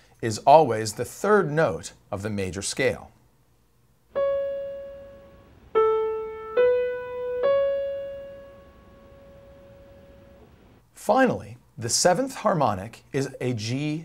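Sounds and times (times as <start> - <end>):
single piano notes: 4.1 - 10.8.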